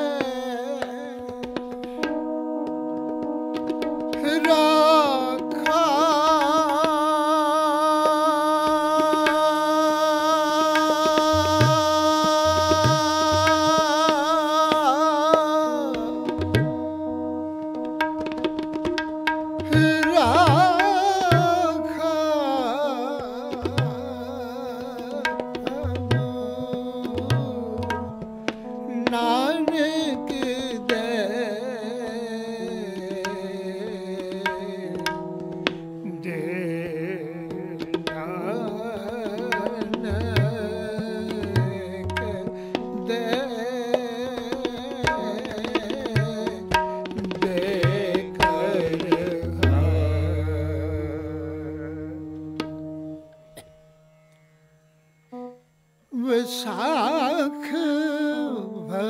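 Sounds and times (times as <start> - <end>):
harmonium and keyboard chords: 0.0 - 59.0
tabla strokes: 10.7 - 15.4, 16.0 - 22.4, 23.5 - 28.7, 34.2 - 35.9, 37.5 - 54.5.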